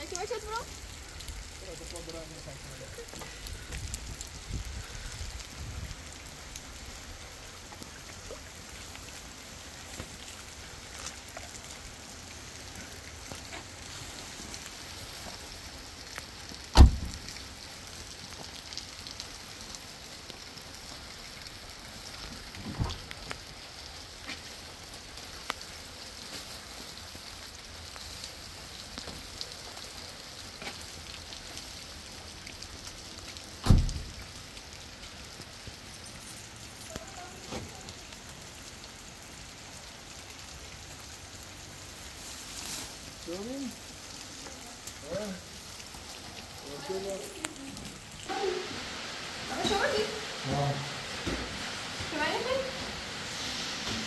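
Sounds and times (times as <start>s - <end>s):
rain pattering: 0.0s - 54.0s
sharp thump: 16.8s - 17.2s.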